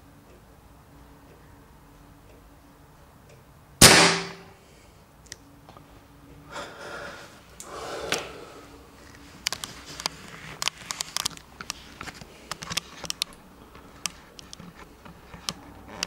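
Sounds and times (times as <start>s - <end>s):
sharp loud bang: 3.8s - 4.6s
camera rustling and scraping: 9.0s - 16.0s.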